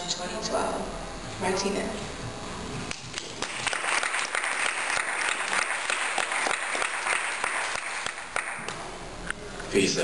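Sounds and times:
audience applauding: 3.1 - 8.8.

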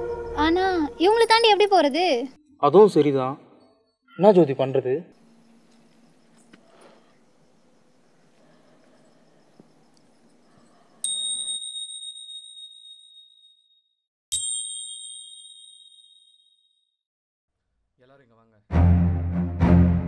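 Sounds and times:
high-pitched metallic bell ding: 14.4 - 16.6.

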